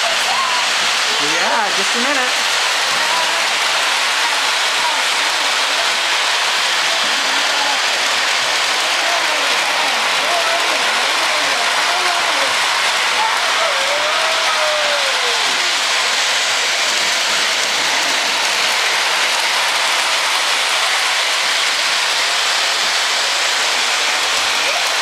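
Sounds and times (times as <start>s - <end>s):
model train wheels hissing on rails: 0.0s - 25.0s.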